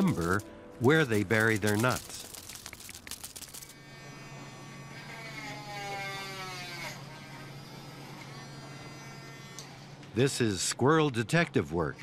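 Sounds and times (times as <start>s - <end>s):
dry leaves crackling: 0.0s - 3.7s
rotary tool whirring: 1.0s - 8.8s.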